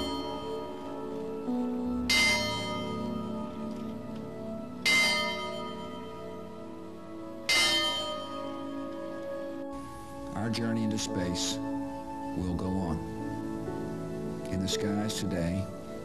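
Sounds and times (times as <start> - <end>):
bell tolling: 0.0 - 1.0, 2.1 - 3.8, 4.8 - 6.5, 7.5 - 8.9
soft sustained music: 0.0 - 16.0.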